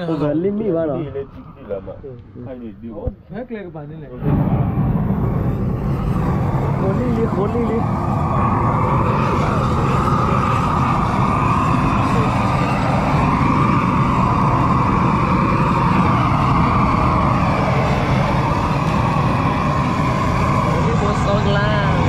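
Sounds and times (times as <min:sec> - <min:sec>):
propane torch burning: 0:00.0 - 0:22.0.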